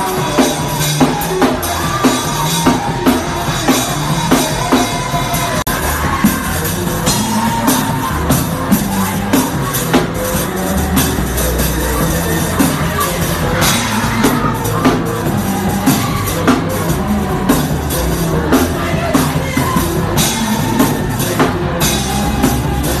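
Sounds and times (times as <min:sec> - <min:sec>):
drum kit beat: 0:00.0 - 0:23.0
live worship band music: 0:00.0 - 0:23.0.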